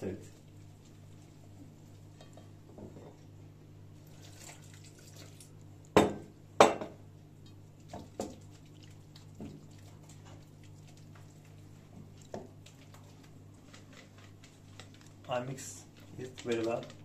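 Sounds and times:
whisk stirring batter in metal bowl: 0:07.8 - 0:17.0.

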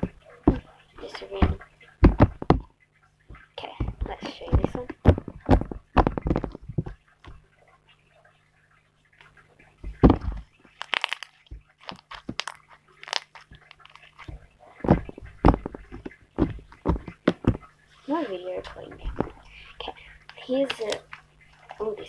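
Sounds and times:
slime sticky clicks and pops: 0:10.8 - 0:14.1.

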